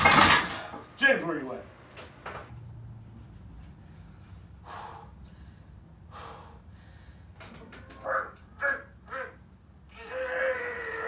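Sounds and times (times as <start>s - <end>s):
man breathing forcefully: 3.8s - 7.4s.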